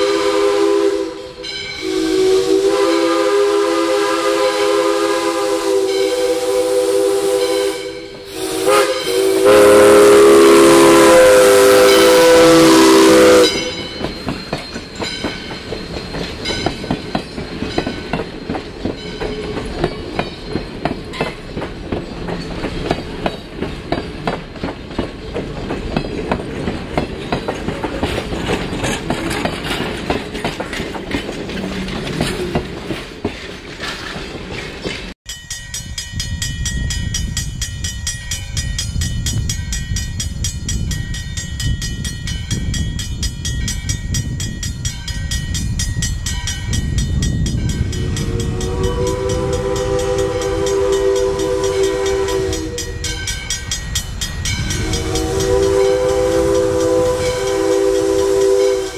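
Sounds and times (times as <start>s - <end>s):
steam locomotive whistle: 0.0s - 14.1s, 47.9s - 53.5s, 54.4s - 58.9s
train wheels clickety-clack: 7.3s - 58.9s.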